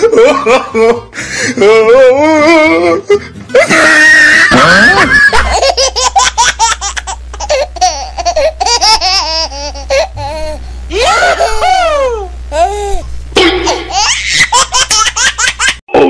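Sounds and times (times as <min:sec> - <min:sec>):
high-pitched laughter: 0:03.7 - 0:12.7, 0:13.5 - 0:15.8
low steady hum: 0:04.5 - 0:16.0.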